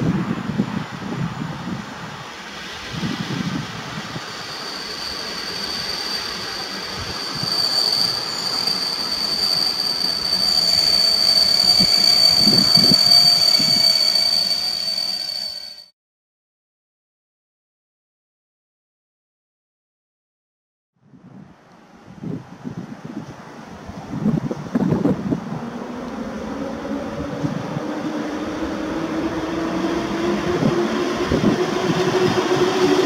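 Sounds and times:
train rolling noise: 0:00.1 - 0:15.9, 0:23.3 - 0:33.0
high steady squeal: 0:02.2 - 0:15.9, 0:24.7 - 0:33.0.

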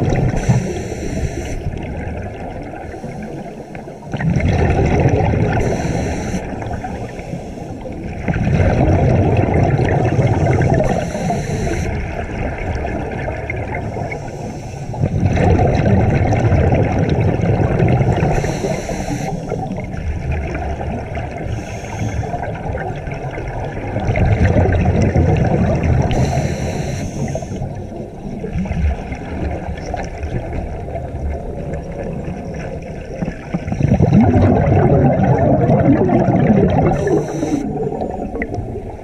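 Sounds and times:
exhaled bubbles rumbling underwater: 0:00.0 - 0:39.0
regulator inhalation hiss: 0:00.4 - 0:01.7, 0:05.6 - 0:07.8, 0:10.8 - 0:12.0, 0:13.9 - 0:15.0, 0:18.3 - 0:19.6, 0:21.5 - 0:22.4, 0:26.1 - 0:27.8, 0:36.9 - 0:37.8.

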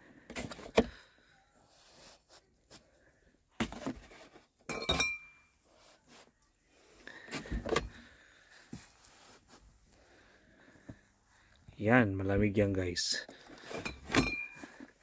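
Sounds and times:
bottles knocking and handling: 0:03.6 - 0:05.5, 0:13.4 - 0:15.0
glass bottles clinking: 0:04.7 - 0:05.5, 0:13.6 - 0:14.8.

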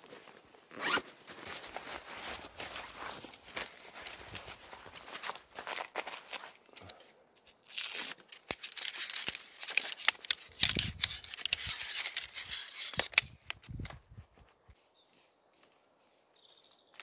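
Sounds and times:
canvas seat rustling: 0:00.6 - 0:05.5
metal poles clacking and snapping: 0:08.4 - 0:13.6.

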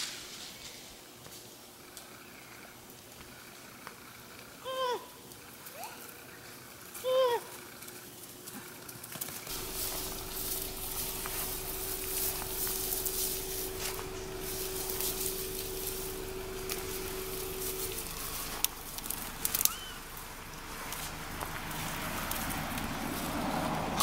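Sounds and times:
rustling grass and leaf litter: 0:00.0 - 0:01.6, 0:05.5 - 0:24.0
low hum: 0:09.5 - 0:24.0.

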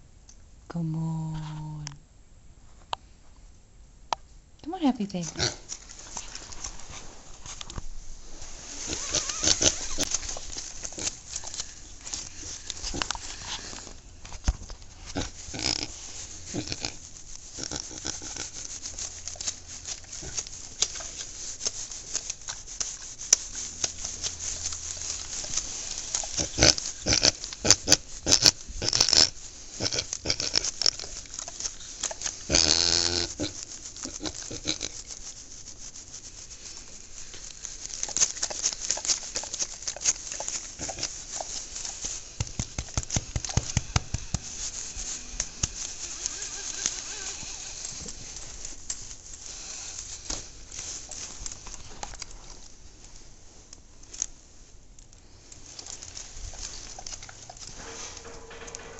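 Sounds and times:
straw rustling: 0:05.2 - 0:58.9
hands rubbing animal's coat: 0:05.6 - 0:54.2, 0:55.3 - 0:58.9
pig grunting: 0:08.9 - 0:10.2, 0:15.1 - 0:17.0, 0:17.6 - 0:18.7, 0:26.2 - 0:31.1, 0:32.5 - 0:35.0.

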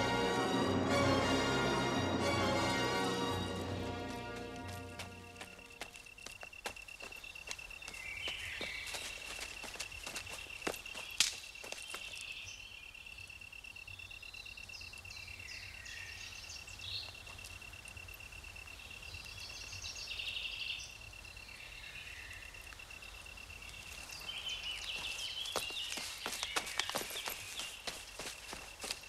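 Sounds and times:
high insect trill: 0:03.5 - 0:15.4, 0:16.4 - 0:29.0
bird chirps: 0:05.1 - 0:17.5, 0:18.6 - 0:29.0.

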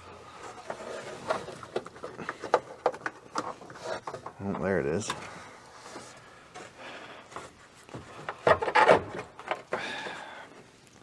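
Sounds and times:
plastic trim rubbing and scraping: 0:00.3 - 0:04.7, 0:07.3 - 0:09.6.

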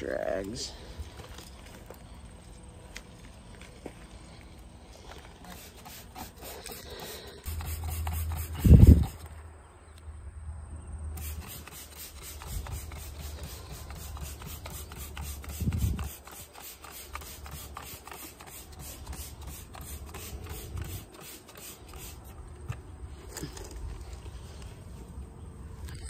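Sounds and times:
rag scrubbing: 0:05.5 - 0:09.3.

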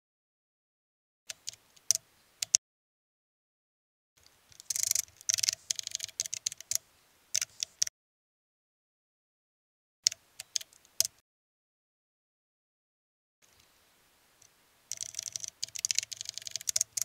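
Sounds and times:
computer keyboard typing: 0:04.6 - 0:06.8, 0:14.9 - 0:17.0.

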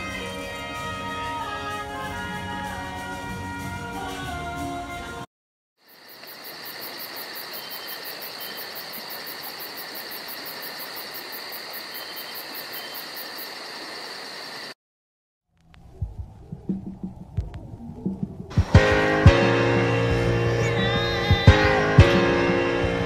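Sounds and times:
insects chirping: 0:05.8 - 0:14.8
rapid pulsing insect trill: 0:05.8 - 0:14.8
low rumbling: 0:15.6 - 0:21.8.

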